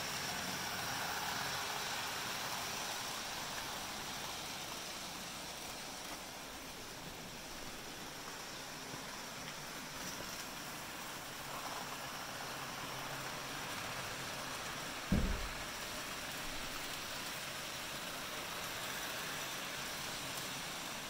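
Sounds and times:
model trains whirring: 0.0 - 21.0
low thump: 15.1 - 15.6.

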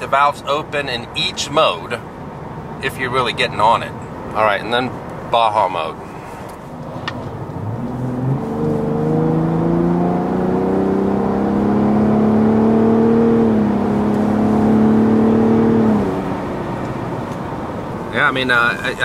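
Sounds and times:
truck engine accelerating hard: 6.8 - 18.0.

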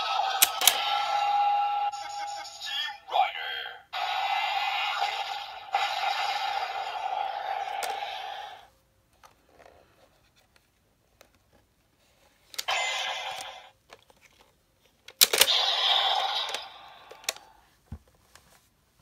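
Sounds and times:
toy electronic sound effects: 0.0 - 8.7, 12.6 - 13.7, 15.3 - 17.5
plastic mechanism clicks: 13.8 - 15.5.

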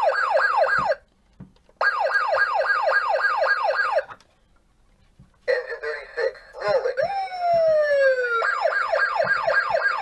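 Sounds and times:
toy fire engine siren wail: 7.0 - 10.0.

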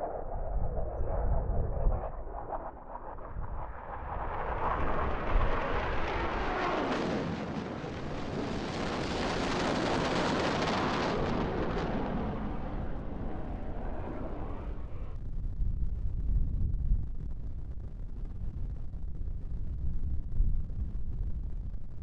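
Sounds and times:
explosion blast with rushing rumble: 0.0 - 15.2.

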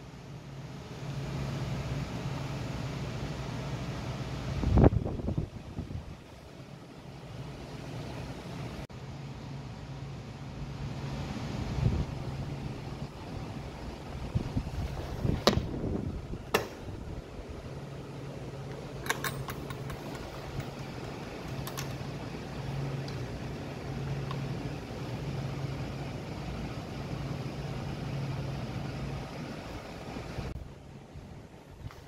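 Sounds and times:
steady low hum: 0.0 - 32.0
metal latch clicking: 19.0 - 22.0.

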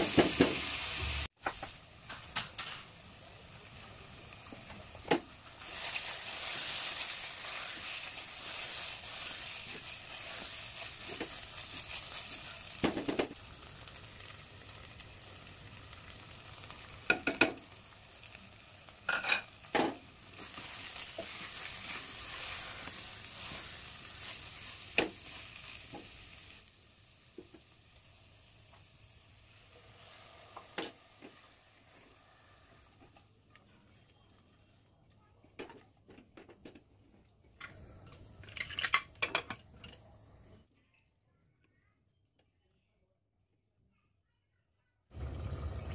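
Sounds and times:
vegetables sizzling in hot oil: 0.0 - 33.2, 45.2 - 45.9.

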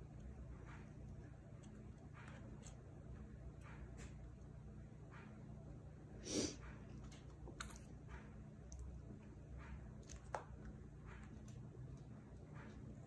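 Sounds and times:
rabbits' feet tapping and scuffling: 0.0 - 5.7.

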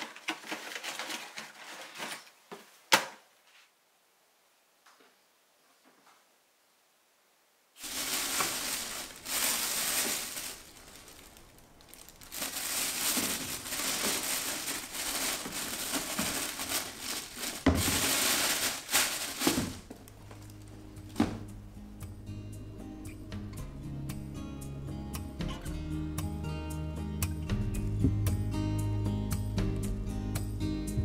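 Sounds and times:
plastic bin bag crinkling: 0.0 - 2.5, 7.8 - 21.3
soft music: 20.1 - 31.0.

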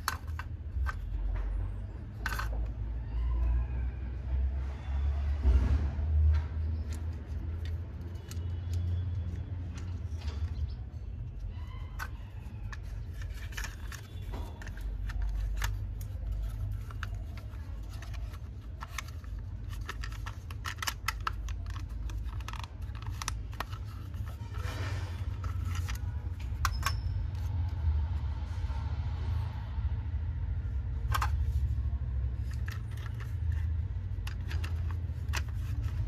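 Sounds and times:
small hard parts clicking and rattling: 0.0 - 3.5, 6.3 - 27.8, 30.7 - 36.0.

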